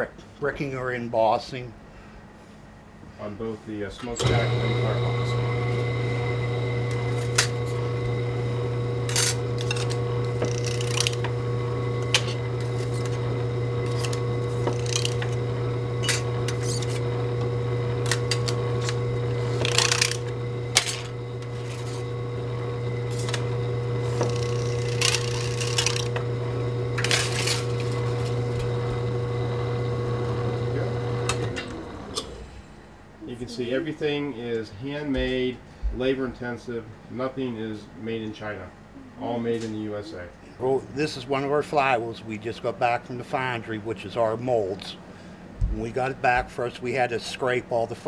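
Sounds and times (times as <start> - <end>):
embossing machine humming: 4.1 - 33.3.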